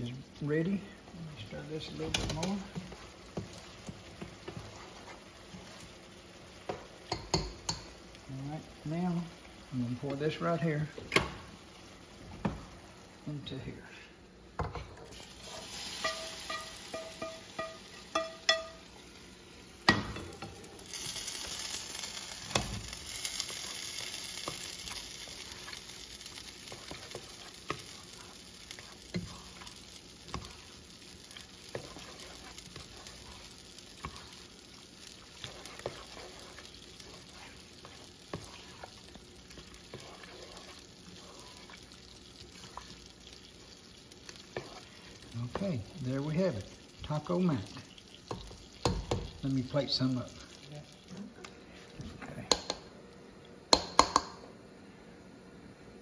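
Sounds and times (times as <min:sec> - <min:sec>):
food sizzling in a pot: 0:00.0 - 0:54.7
spoon scraping a pot: 0:15.1 - 0:18.8, 0:31.4 - 0:34.4, 0:35.2 - 0:41.8, 0:44.5 - 0:45.1
metal cookware clanking: 0:15.7 - 0:18.8.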